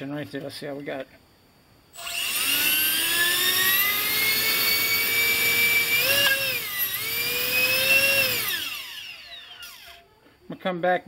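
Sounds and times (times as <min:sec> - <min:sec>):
electric fan motor whining: 0:02.0 - 0:10.0.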